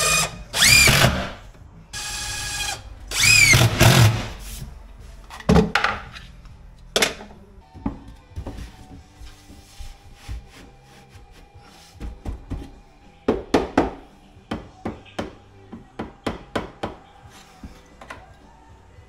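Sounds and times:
knocks and taps on cabinet: 0:12.0 - 0:12.7, 0:13.3 - 0:17.0.

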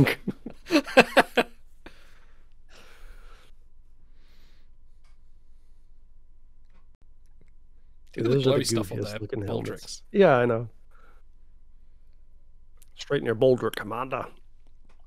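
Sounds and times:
men laughing: 0:00.0 - 0:01.5
low hum: 0:00.0 - 0:15.0.

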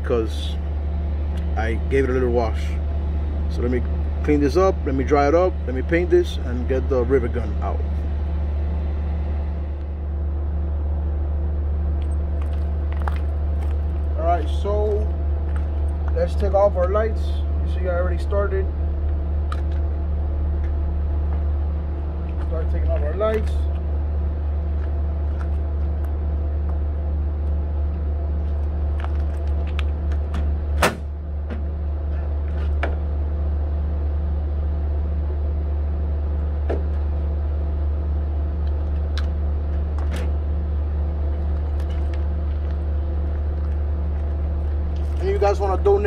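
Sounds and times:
low engine hum: 0:00.0 - 0:46.0
low mechanical rumble: 0:00.0 - 0:46.0
sharp loud knock: 0:30.8 - 0:31.1.

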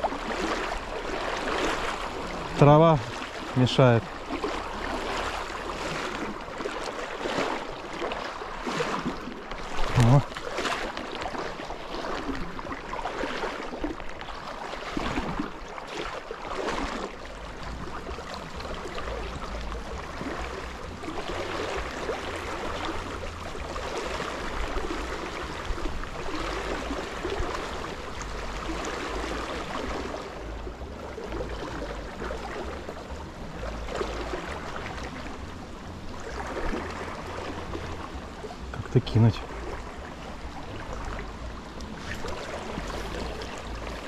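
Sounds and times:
river water rippling and gurgling: 0:00.0 - 0:44.0
low rumble: 0:17.2 - 0:44.0.

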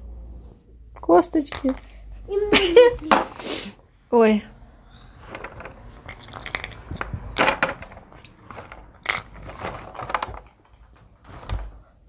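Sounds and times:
small hard objects knocking: 0:05.2 - 0:11.6.

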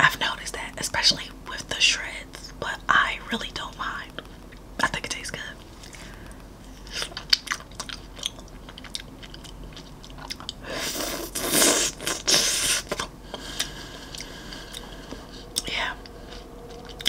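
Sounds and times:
biting and chewing ice cream bar: 0:07.0 - 0:14.9.

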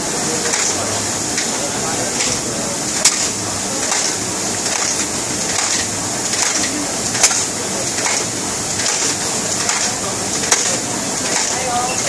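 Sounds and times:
rowing machine flywheel whirring: 0:00.0 - 0:12.0
sharp click: 0:03.0 - 0:11.6.

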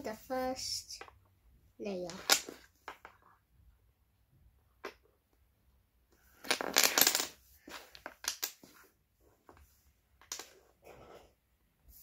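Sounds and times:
dominoes clattering on wooden floor: 0:02.1 - 0:03.2, 0:06.4 - 0:08.8, 0:10.2 - 0:10.6.

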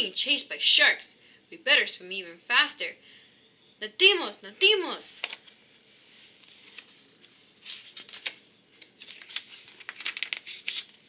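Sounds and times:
paper page rustling: 0:05.2 - 0:11.0.

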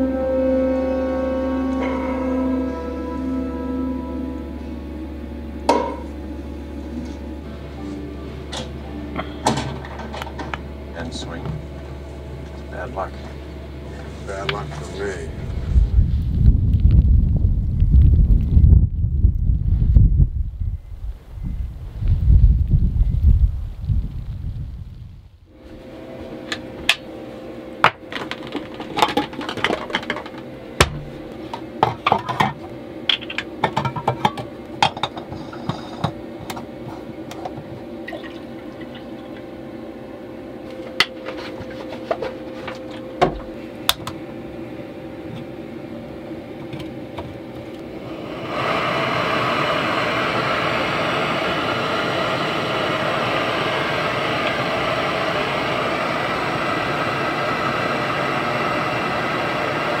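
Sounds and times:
gas burner hissing: 0:01.6 - 1:00.0
stove and pot clattering: 0:08.5 - 0:10.7, 0:27.8 - 0:39.4.

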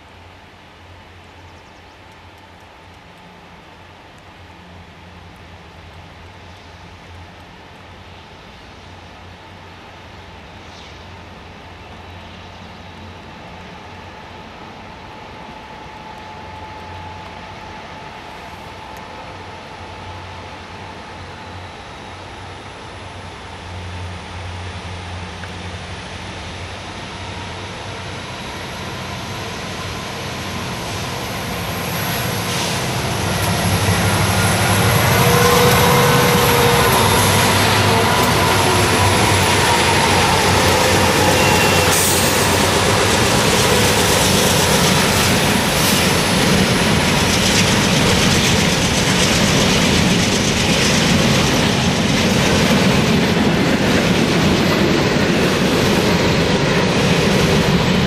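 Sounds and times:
diesel locomotives working hard: 0:00.0 - 0:58.0
locomotive whine: 0:11.2 - 0:58.0
freight cars rumbling and rattling: 0:23.8 - 0:58.0.

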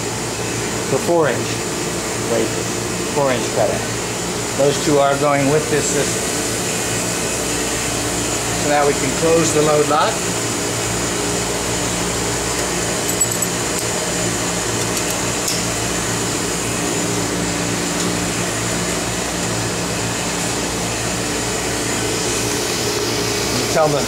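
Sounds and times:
machinery humming: 0:00.0 - 0:24.0.

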